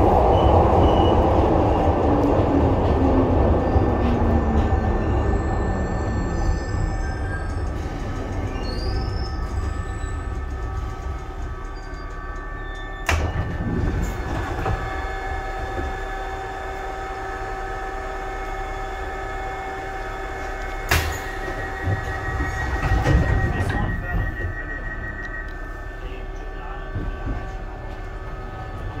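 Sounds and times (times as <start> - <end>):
subway car equipment humming: 0.0 - 29.0
train doors clunking: 7.4 - 16.4, 20.3 - 25.5.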